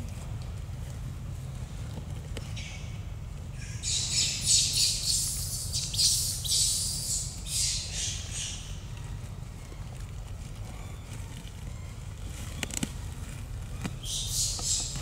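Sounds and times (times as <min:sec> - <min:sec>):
baby monkey screeching: 0:03.6 - 0:08.9, 0:14.0 - 0:15.0.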